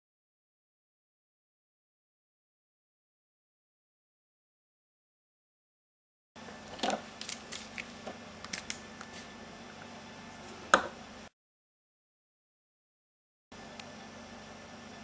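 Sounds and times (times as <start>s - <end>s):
faint steady hum: 6.4s - 11.3s, 13.5s - 15.0s.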